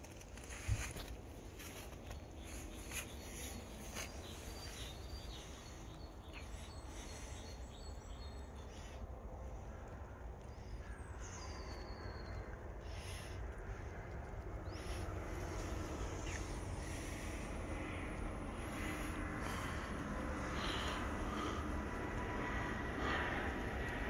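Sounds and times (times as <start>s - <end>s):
soft footsteps: 0.0s - 5.1s.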